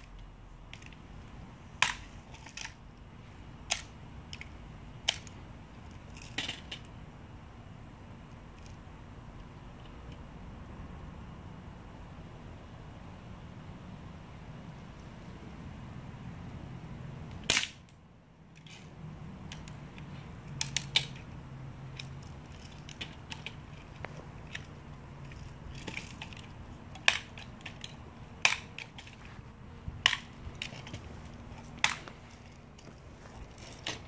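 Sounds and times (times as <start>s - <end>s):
handling clicks: 19.5s - 29.3s.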